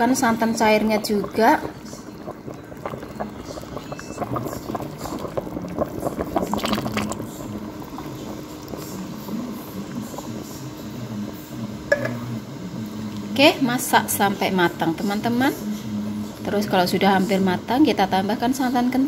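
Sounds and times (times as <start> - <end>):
broth bubbling: 0.0 - 18.3
liquid pouring and splashing: 1.1 - 10.6.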